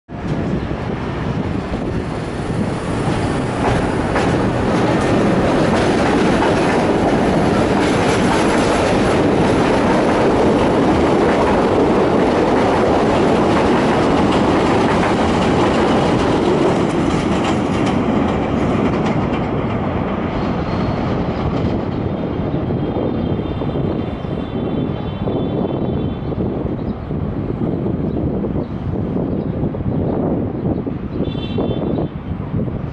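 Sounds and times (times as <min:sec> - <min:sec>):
train wheels clattering over rails: 0:01.2 - 0:24.7.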